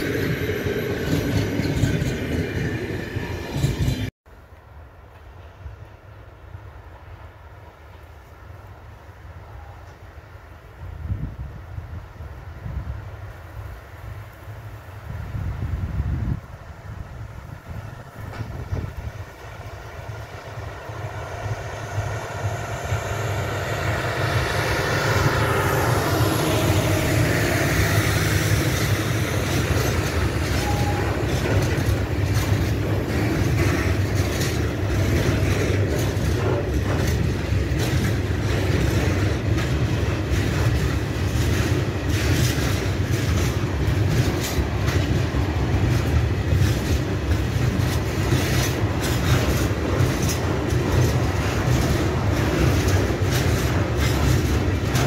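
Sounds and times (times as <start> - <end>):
freight wagons rumbling: 0.0 - 4.1, 17.4 - 55.0
locomotive engine drone: 16.9 - 55.0
wheels clicking over rail joints: 18.0 - 55.0.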